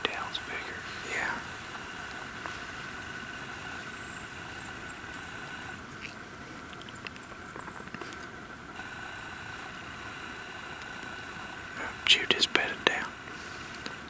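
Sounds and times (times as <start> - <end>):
faint ticks: 0.0 - 9.0, 9.6 - 14.0
background hiss: 0.0 - 14.0.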